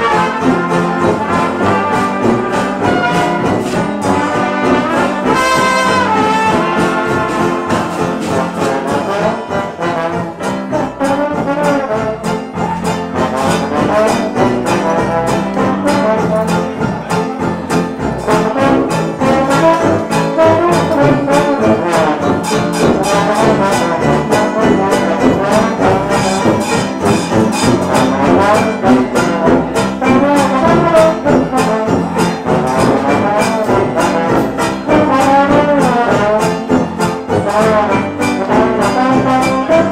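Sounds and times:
jazz band playing: 0.0 - 39.9
trombone: 0.0 - 39.9
trumpet: 0.0 - 39.9.

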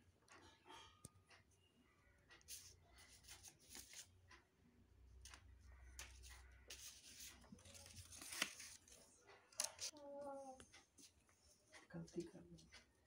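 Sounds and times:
paper rustling on table: 2.5 - 4.1, 6.0 - 9.9.

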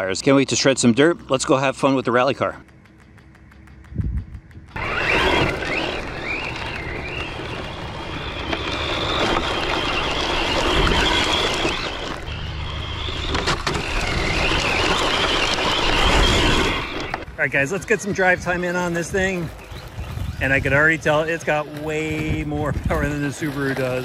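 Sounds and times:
steady rushing noise: 0.0 - 23.6
electric motor whine: 2.7 - 17.4.

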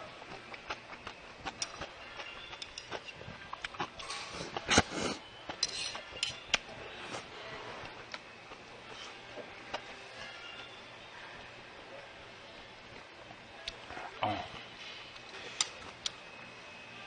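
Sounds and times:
person slurping broth: 4.0 - 5.3.

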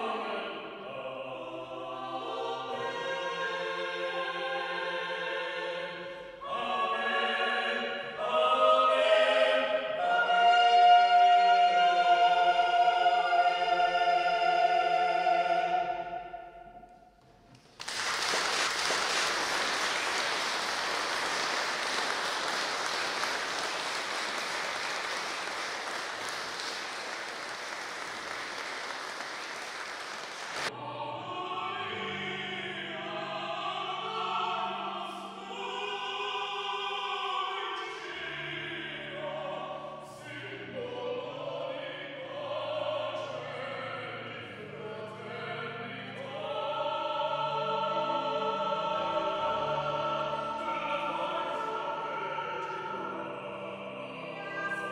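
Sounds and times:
music with sustained singing: 0.0 - 17.0, 30.7 - 54.9
audience applauding: 17.6 - 30.7.

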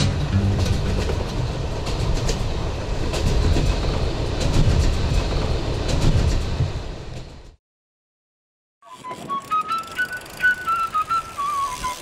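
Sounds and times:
train rumbling: 0.0 - 7.6.

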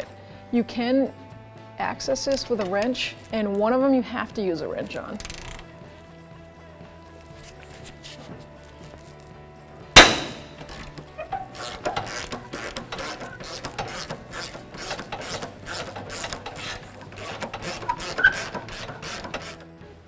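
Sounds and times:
hand ratchet clicking: 5.2 - 5.7, 10.0 - 19.7
sharp crack: 10.0 - 11.0.

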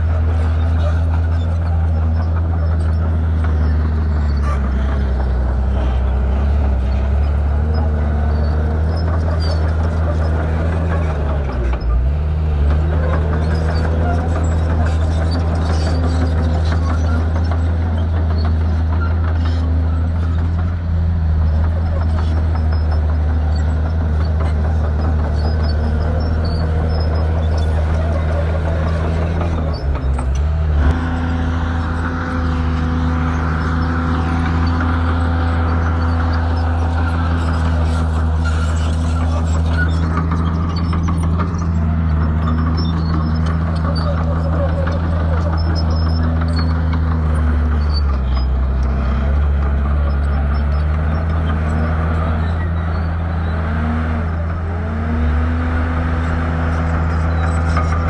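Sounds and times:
heavy diesel bulldozer engine running: 0.0 - 58.0.

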